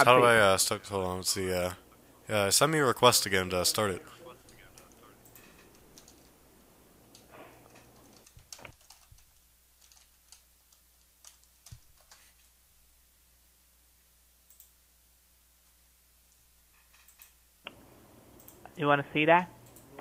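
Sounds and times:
faint low hum: 0.0 - 20.0
keyboard typing: 4.4 - 6.4, 7.1 - 12.4.

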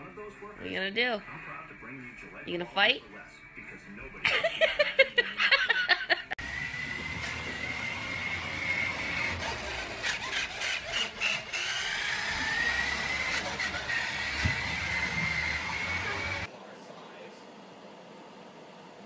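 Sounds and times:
toy truck electric motor whining: 6.4 - 16.5.

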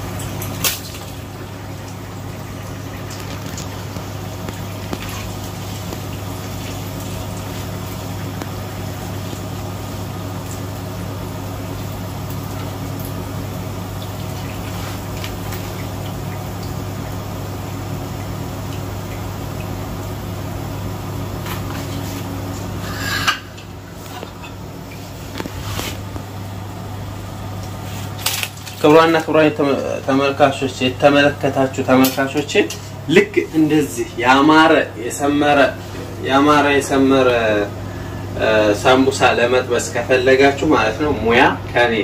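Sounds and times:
food sizzling in hot oil: 0.0 - 26.7
low electrical hum: 0.0 - 42.0.

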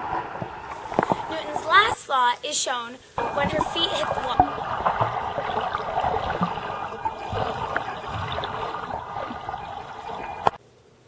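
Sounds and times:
pool water churning and bubbling: 0.0 - 10.6
bubbles popping: 3.2 - 10.6.

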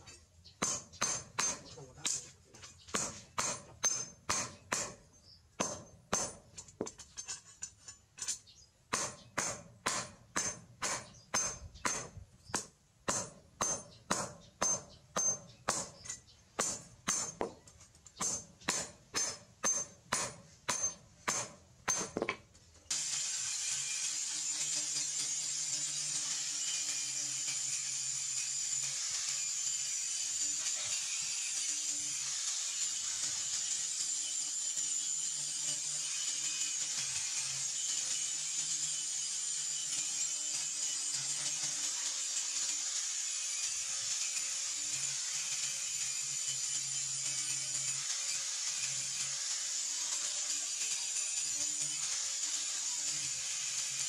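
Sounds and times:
hammer clanging on steel: 0.0 - 5.0, 5.6 - 22.5
angle grinder cutting steel: 0.6 - 5.0, 22.9 - 54.0.

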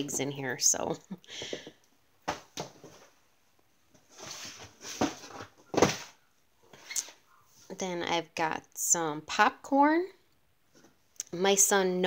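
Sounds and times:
cardboard boxes knocking and rustling: 3.9 - 6.2.

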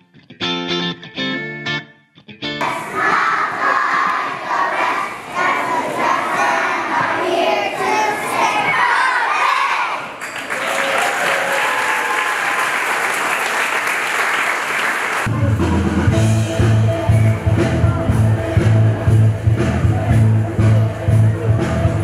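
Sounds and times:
children calling out together: 2.7 - 10.2
applause and cheering: 10.1 - 15.4
music with heavy bass beat: 15.3 - 22.0.

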